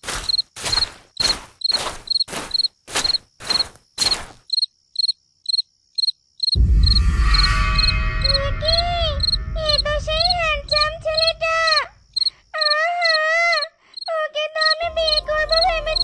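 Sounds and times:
footsteps: 0:00.0 - 0:04.5
crickets chirping: 0:00.0 - 0:16.0
deep rumble with held tones: 0:06.6 - 0:11.7.

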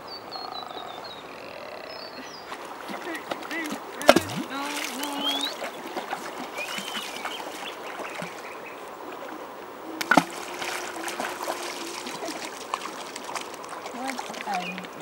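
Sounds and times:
river trickling: 0:00.0 - 0:15.0
stone plopping into water: 0:04.0 - 0:05.1, 0:10.0 - 0:12.4.

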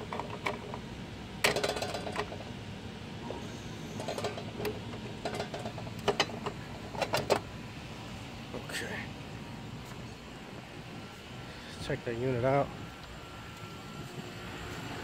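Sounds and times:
steady hum: 0:00.0 - 0:15.0
metal clicks and knocks: 0:01.4 - 0:02.4, 0:04.0 - 0:07.4.

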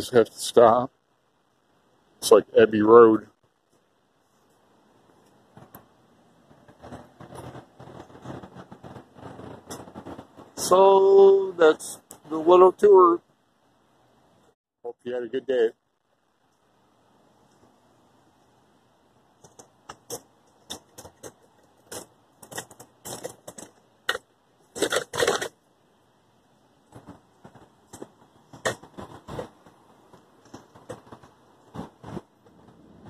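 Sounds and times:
irregular sharp clicks and rattles: 0:03.3 - 0:10.7, 0:19.3 - 0:25.7, 0:26.7 - 0:32.8.

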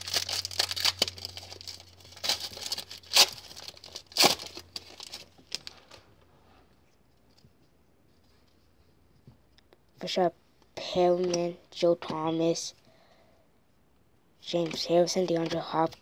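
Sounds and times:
plastic wrapper tearing and crinkling: 0:00.0 - 0:06.0.

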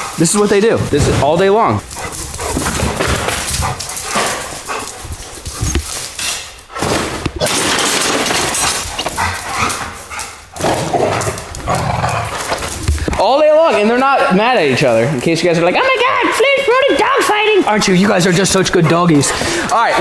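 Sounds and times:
dogs scuffling: 0:00.0 - 0:20.0
dogs barking: 0:13.7 - 0:14.9, 0:17.8 - 0:20.0.

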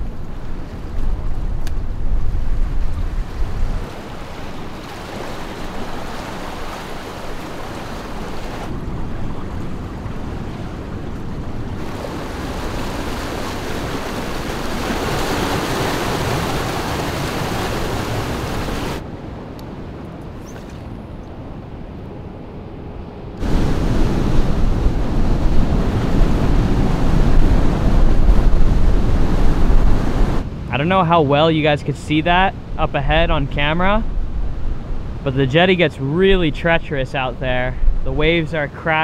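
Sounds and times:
surf washing against rocks: 0:00.0 - 0:19.0, 0:23.4 - 0:31.6
wind: 0:00.0 - 0:39.0.

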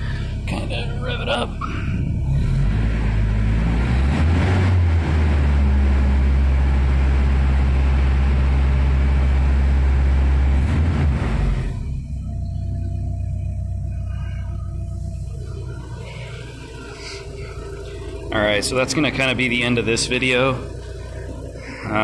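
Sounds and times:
pickup engine revving: 0:00.0 - 0:12.2, 0:13.2 - 0:22.0.

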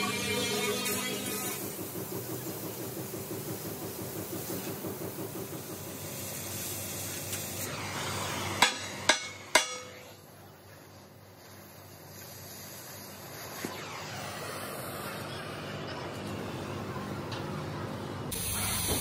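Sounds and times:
cutting torch hissing: 0:00.0 - 0:09.2, 0:11.0 - 0:16.1, 0:18.3 - 0:19.0.

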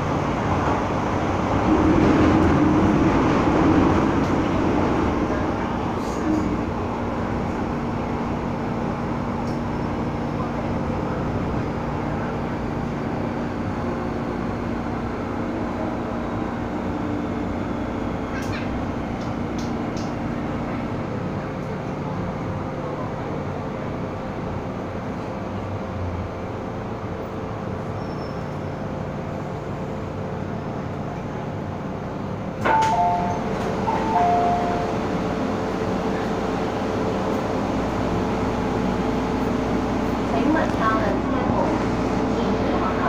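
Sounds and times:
train rumbling in tunnel: 0:00.0 - 0:43.0
train doors opening knock: 0:32.6 - 0:35.0
two-tone door chime: 0:32.7 - 0:35.0.

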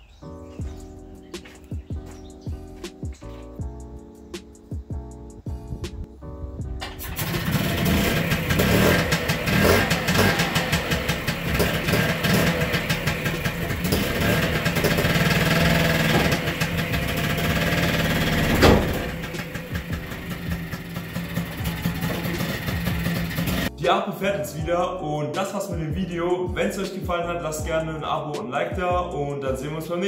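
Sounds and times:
engine starting and running: 0:06.7 - 0:23.7
sharp bang: 0:18.0 - 0:20.2.

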